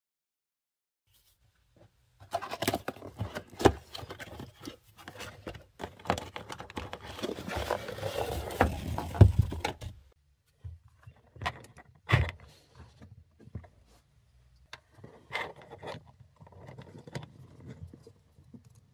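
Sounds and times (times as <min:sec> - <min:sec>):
cardboard and packaging rustling: 0:02.2 - 0:10.2.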